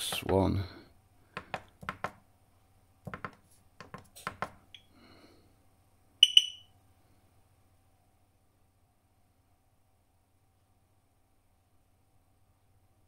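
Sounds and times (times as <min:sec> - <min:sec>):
keypad button clicks: 0:06.2 - 0:06.6
high double beep: 0:06.2 - 0:06.7.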